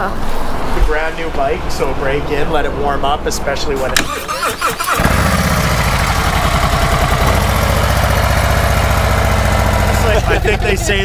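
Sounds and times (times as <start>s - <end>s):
motorcycle engine idling: 5.0s - 11.0s.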